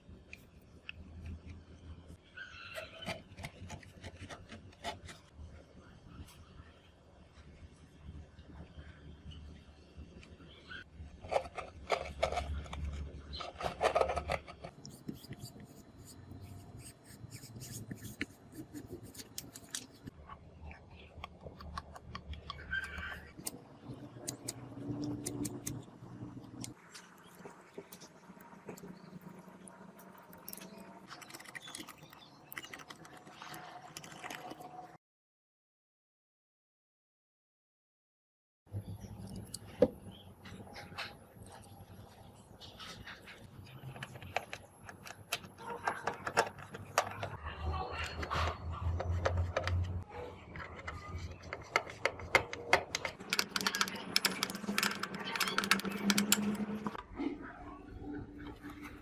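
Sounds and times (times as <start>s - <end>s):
screwdriver driving a screw: 51.8s - 56.6s.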